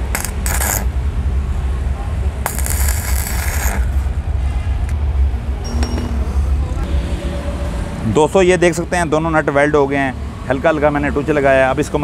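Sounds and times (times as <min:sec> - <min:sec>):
arc welder buzzing: 0:00.0 - 0:01.0, 0:02.4 - 0:04.1.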